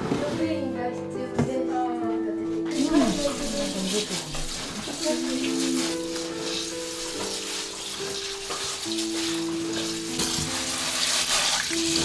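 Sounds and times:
slow background music: 0.0s - 12.0s
rice swishing in water: 2.7s - 12.0s
running tap: 2.7s - 12.0s.

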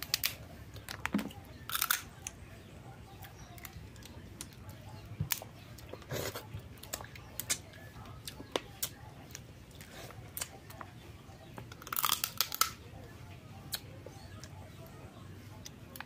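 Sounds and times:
crab shell cracking: 0.0s - 2.4s, 11.7s - 12.8s
chewing: 3.1s - 16.0s.

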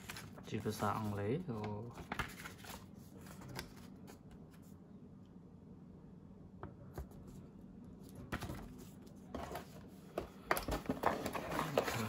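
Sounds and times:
packaging rustling: 10.7s - 12.0s.

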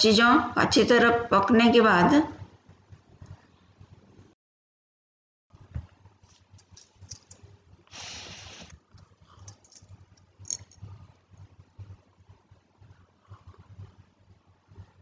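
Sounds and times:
hiss: 7.9s - 8.7s.

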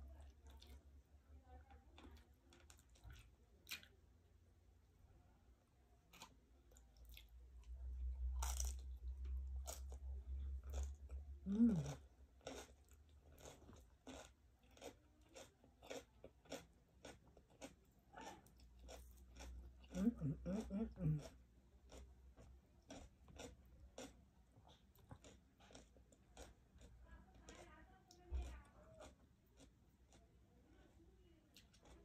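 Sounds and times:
chewing and crunching: 0.0s - 4.0s, 6.1s - 32.0s
low murmur of voice: 11.4s - 12.0s.

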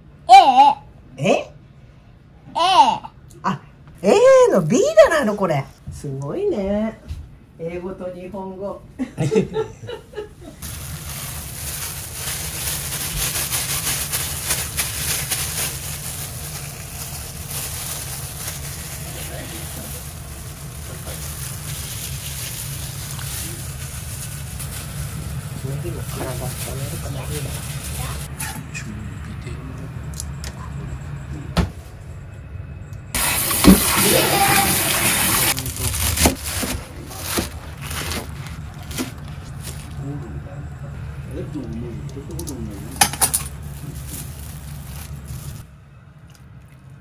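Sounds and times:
steady low hum: 5.6s - 33.2s, 35.5s - 47.0s
water rushing from tap: 33.2s - 35.6s.

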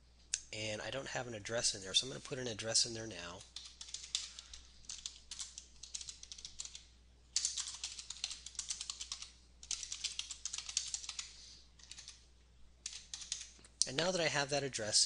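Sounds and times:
typing on computer keyboard: 3.4s - 12.2s, 12.8s - 13.6s.

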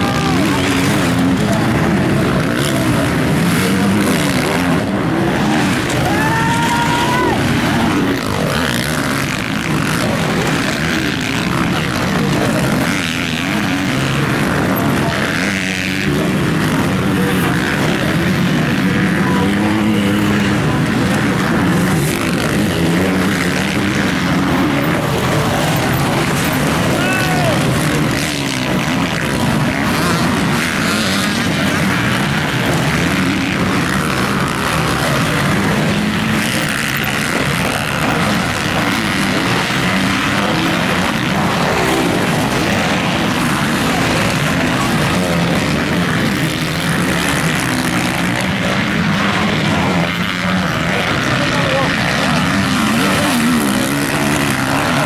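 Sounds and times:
motocross engines revving: 0.0s - 55.0s.

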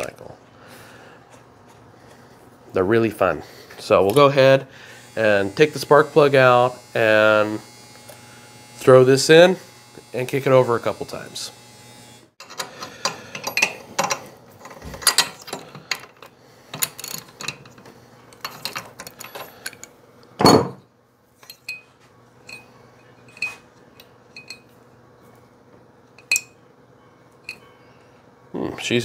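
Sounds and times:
metal wrench clicks and clinks: 12.4s - 14.2s, 23.3s - 24.7s, 26.2s - 26.5s.

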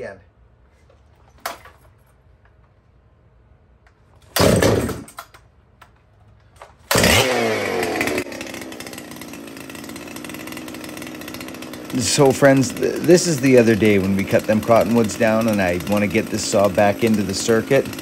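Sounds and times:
chainsaw pull-start: 4.2s - 5.4s, 6.7s - 18.0s
chainsaw idling: 4.4s - 5.1s, 6.9s - 18.0s.

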